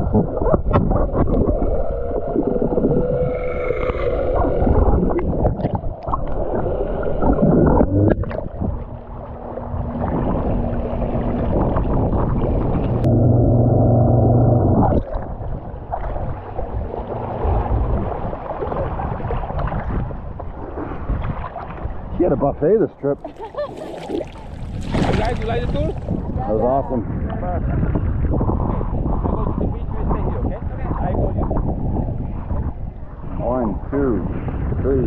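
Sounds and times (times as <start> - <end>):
water splashing: 0.0 - 22.1, 23.2 - 26.5
water rushing and gurgling: 0.0 - 35.0.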